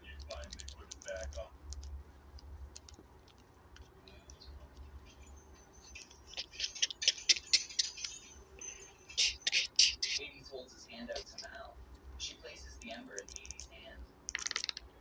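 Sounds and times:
rapid small clicks and taps: 0.0s - 8.3s, 12.8s - 15.0s.

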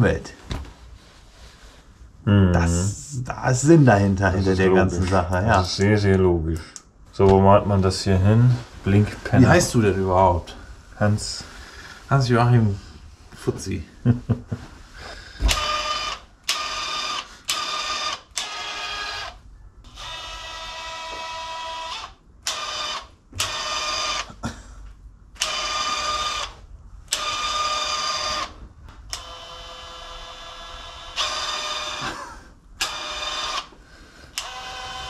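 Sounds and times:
small electric motor whining: 15.5s - 24.3s, 34.3s - 35.0s.

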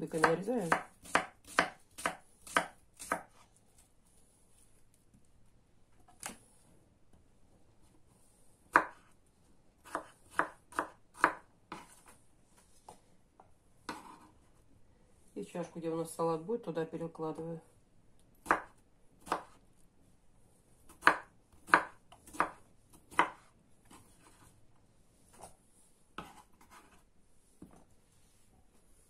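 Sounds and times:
knife cutting on wooden board: 9.8s - 12.2s, 13.8s - 14.4s, 20.9s - 24.5s, 26.2s - 27.0s.

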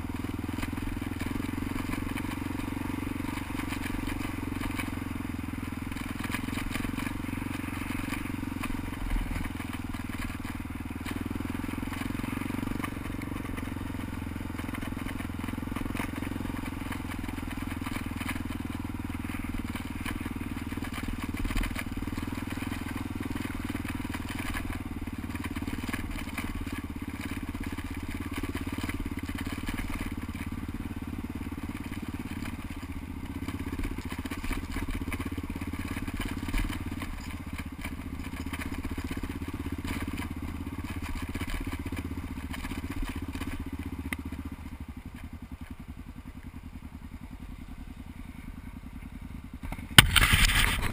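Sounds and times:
motorcycle engine running: 0.0s - 50.9s
tyres crunching over stones: 49.8s - 50.9s.

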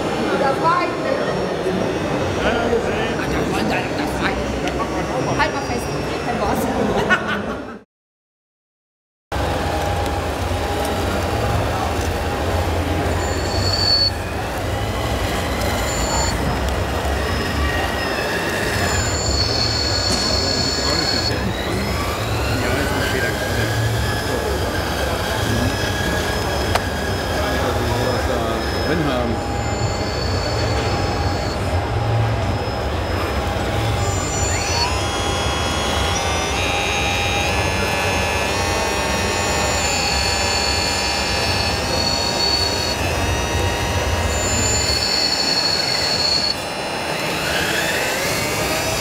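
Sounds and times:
toy bulldozer tracks humming: 9.4s - 49.0s
brief high squeal: 13.1s - 14.4s, 15.4s - 16.6s, 17.2s - 21.8s, 24.8s - 31.7s, 32.4s - 46.9s.

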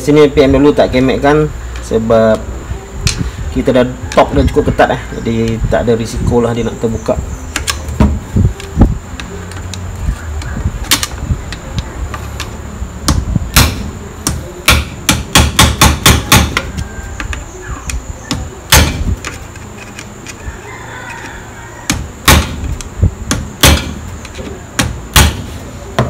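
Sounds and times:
hammer tapping metal punch: 13.1s - 19.1s, 23.3s - 24.0s.

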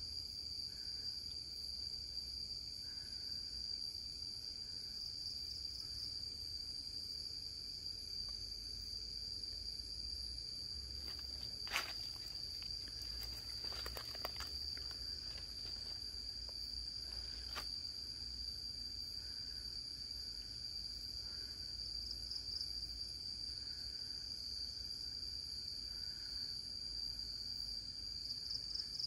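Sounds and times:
crickets droning: 0.0s - 29.0s
faint clicks and rustles: 11.0s - 17.7s.

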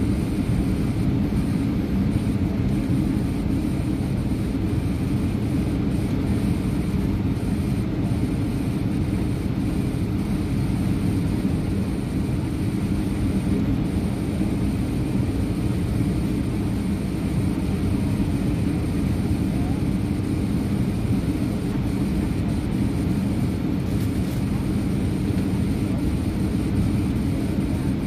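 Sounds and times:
jet engine and airflow rumble: 0.0s - 28.0s.

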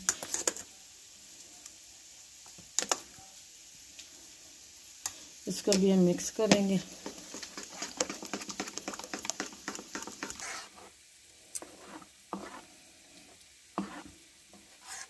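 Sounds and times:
spoon stirring yogurt in bowl: 6.4s - 10.9s, 11.6s - 12.7s, 13.8s - 15.0s.

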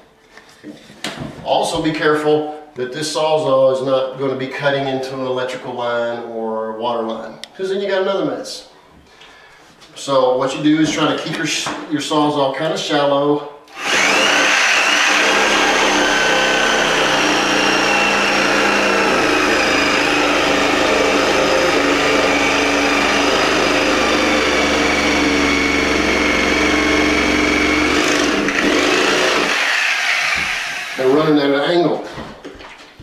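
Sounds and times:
reciprocating saw cutting wood: 13.7s - 31.2s.

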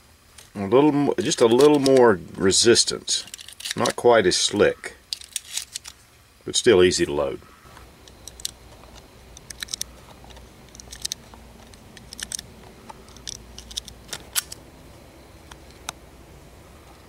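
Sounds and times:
cartridges clicking into magazine: 9.4s - 9.9s, 10.7s - 12.5s, 13.1s - 14.6s.

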